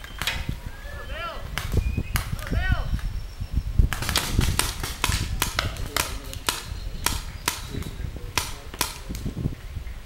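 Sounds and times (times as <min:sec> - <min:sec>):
paintball markers firing: 0:03.9 - 0:09.3.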